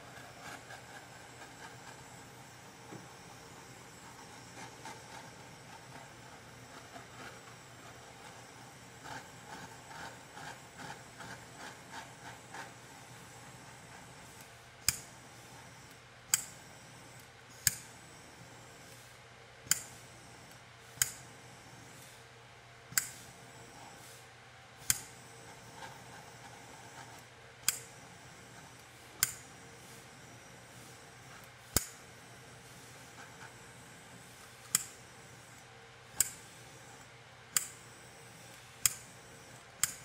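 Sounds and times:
torch igniter clicks: 0:14.8 - 0:15.1, 0:16.3 - 0:16.6, 0:17.6 - 0:17.9, 0:19.6 - 0:20.0, 0:21.0 - 0:21.2, 0:22.9 - 0:23.2, 0:24.8 - 0:25.1, 0:27.6 - 0:27.9, 0:29.2 - 0:29.5, 0:31.7 - 0:32.0, 0:34.7 - 0:35.0, 0:36.1 - 0:36.4, 0:37.5 - 0:37.8, 0:38.8 - 0:39.1, 0:39.8 - 0:40.0.

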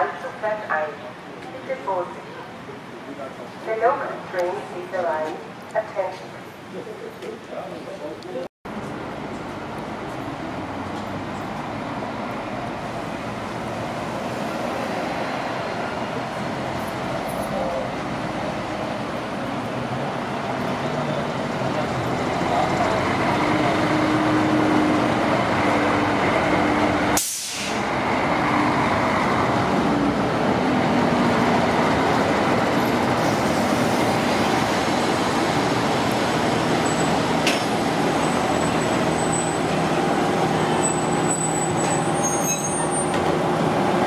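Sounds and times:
moving vehicle running noise: 0:08.7 - 0:44.0
faint high squeals: 0:40.8 - 0:43.2.

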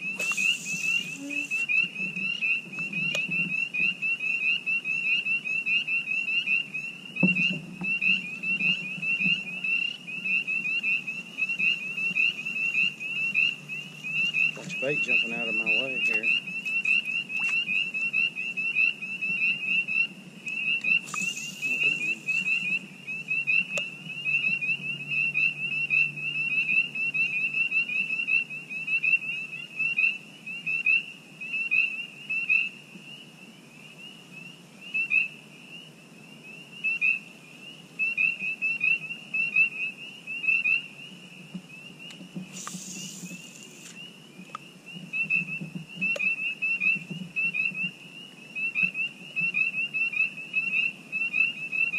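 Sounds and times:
frogs peeping chorus: 0:00.0 - 0:51.9
brief hisses: 0:00.2 - 0:01.6, 0:21.0 - 0:22.6, 0:42.5 - 0:44.0.

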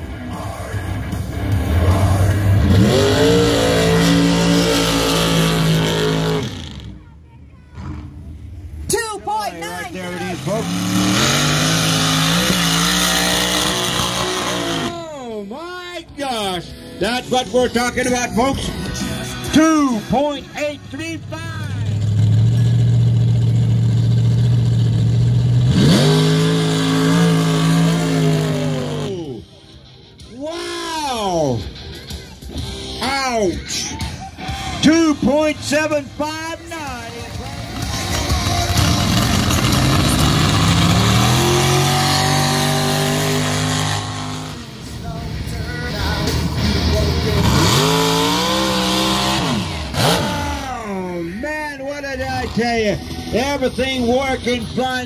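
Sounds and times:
buggy engine revving: 0:00.0 - 0:07.0, 0:09.6 - 0:15.2, 0:17.3 - 0:29.7, 0:32.3 - 0:55.0
tires spinning in dirt: 0:10.0 - 0:15.0, 0:38.2 - 0:44.6.

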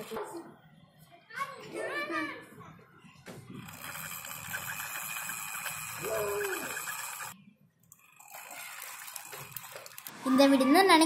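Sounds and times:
toy truck wheels rolling on concrete: 0:03.6 - 0:10.2.

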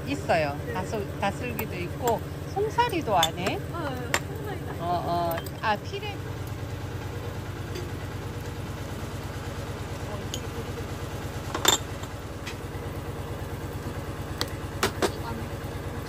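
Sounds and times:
engine idling: 0:00.0 - 0:16.0
metal tongs clinking on grill rack: 0:05.2 - 0:05.7, 0:10.2 - 0:10.6.

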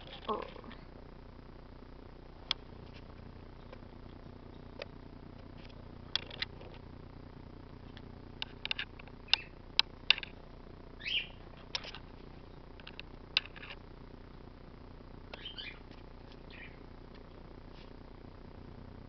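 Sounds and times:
parrot squeaky chirp: 0:11.0 - 0:11.4, 0:15.4 - 0:15.8.

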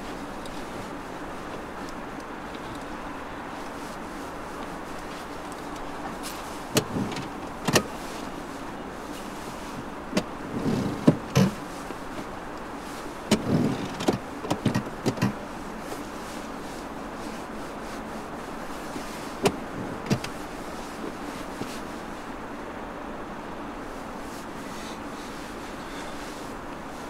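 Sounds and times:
steady hiss: 0:00.0 - 0:27.0
car interior controls clicking: 0:04.6 - 0:08.0, 0:10.1 - 0:11.6, 0:12.2 - 0:15.4, 0:19.4 - 0:20.4.

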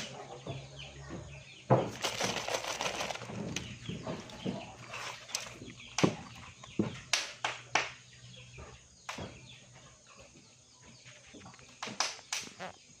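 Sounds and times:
fish slapping inside metal pot: 0:01.9 - 0:06.6.

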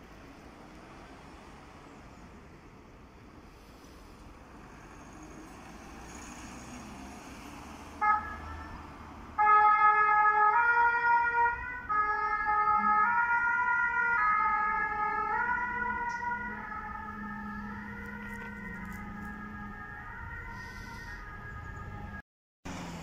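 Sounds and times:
vehicle pulling away: 0:03.7 - 0:09.4, 0:13.8 - 0:23.0
two-tone siren: 0:08.0 - 0:22.2.

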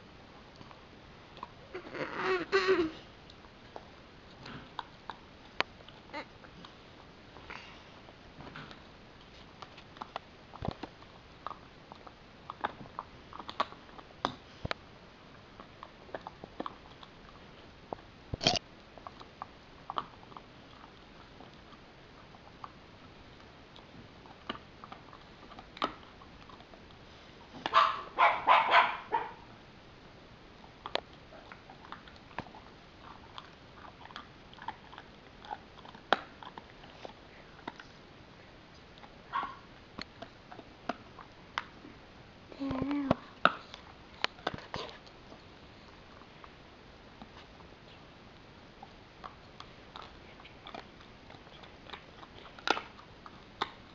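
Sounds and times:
dog chewing bone: 0:08.5 - 0:14.6, 0:15.3 - 0:29.3, 0:30.5 - 0:38.1, 0:38.8 - 0:41.9, 0:43.0 - 0:47.8, 0:48.7 - 0:53.9.

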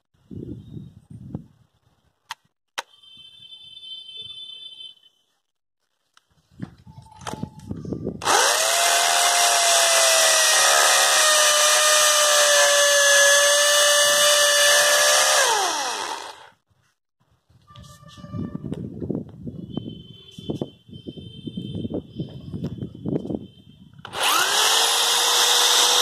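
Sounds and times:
hammer drill grinding into concrete: 0:08.2 - 0:16.6, 0:24.0 - 0:26.0.

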